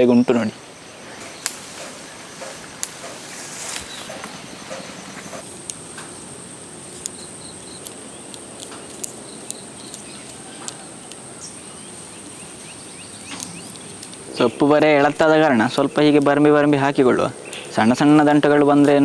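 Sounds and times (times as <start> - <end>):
insects droning: 0.0 - 19.0
sharp clicks: 1.2 - 3.2, 6.9 - 11.6, 13.2 - 14.5.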